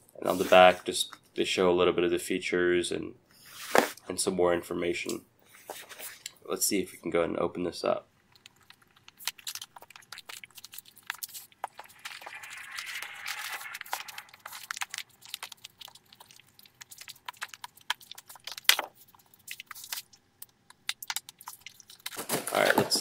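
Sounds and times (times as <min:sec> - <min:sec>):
clicks taps and scrapes: 0:08.3 - 0:23.0.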